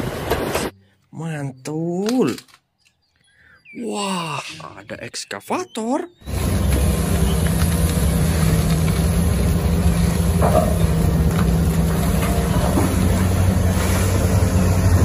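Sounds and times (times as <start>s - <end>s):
excavator engine running: 6.1s - 15.0s.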